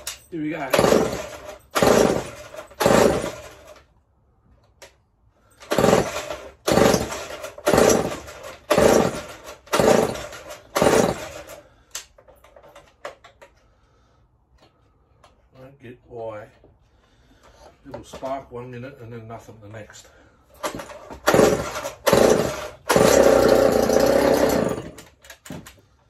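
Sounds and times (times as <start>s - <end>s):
chainsaw recoil starter pulls: 0.0s - 3.9s, 4.8s - 13.7s, 20.6s - 26.0s.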